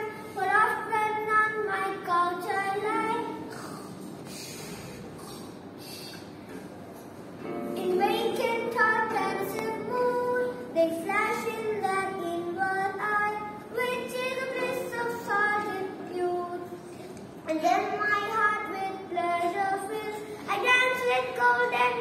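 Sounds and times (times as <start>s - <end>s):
boy singing: 0.0s - 3.5s, 7.8s - 16.8s, 17.5s - 22.0s.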